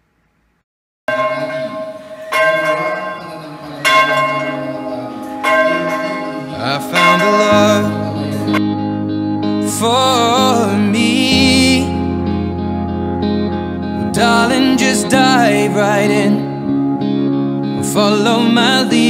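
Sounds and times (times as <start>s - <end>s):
church bell tolling: 1.1s - 8.6s.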